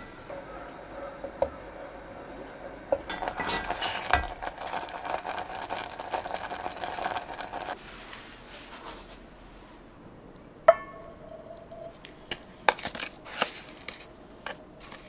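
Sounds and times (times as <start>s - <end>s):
paste bubbling and stirring: 1.2s - 7.8s
spoon knocking on pot: 10.7s - 11.2s.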